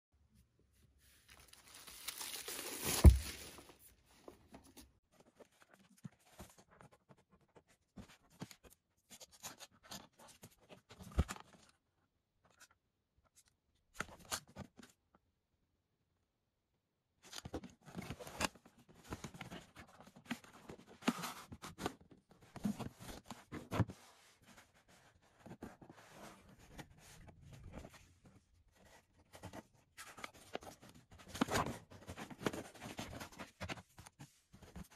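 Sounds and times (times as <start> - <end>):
cardboard box rustling: 1.2 - 4.7
plastic shrink wrap tearing: 1.4 - 3.7.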